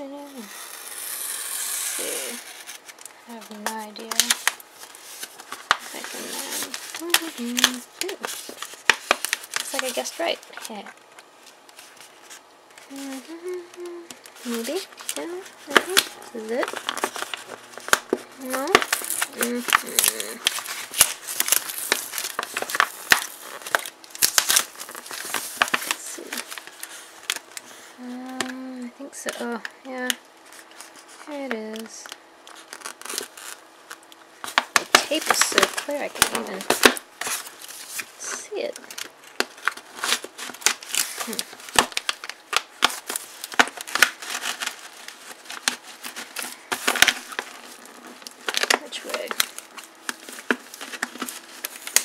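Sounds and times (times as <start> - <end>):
paper wrapping crinkling: 0.3 - 52.0
craft knife slitting tape: 0.5 - 2.9
plastic bottle crinkling: 2.0 - 27.6, 30.5 - 52.0.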